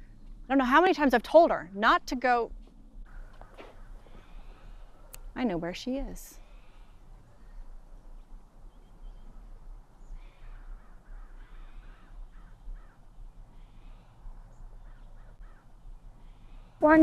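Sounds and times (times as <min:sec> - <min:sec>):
faint low rumble: 0:00.0 - 0:17.0
bird calling: 0:08.6 - 0:17.0.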